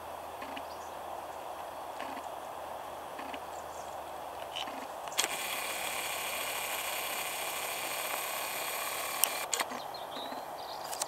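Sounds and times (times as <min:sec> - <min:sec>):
faint outdoor hiss: 0:00.0 - 0:11.0
camera zoom motor whirring: 0:05.1 - 0:09.8
zoom motor click: 0:05.1 - 0:09.8.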